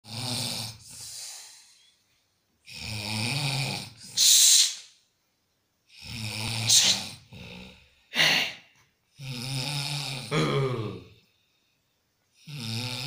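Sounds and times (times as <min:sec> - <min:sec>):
man snoring: 0:00.0 - 0:01.8, 0:02.6 - 0:04.2, 0:05.9 - 0:08.6, 0:09.2 - 0:11.2, 0:12.4 - 0:13.0
loud breath puff: 0:04.1 - 0:05.0, 0:06.6 - 0:07.1.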